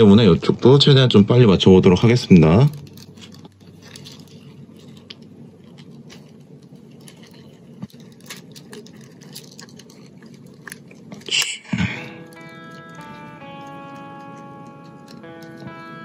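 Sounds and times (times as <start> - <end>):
steady low hum: 0.0 - 16.0
music with held notes: 12.0 - 16.0.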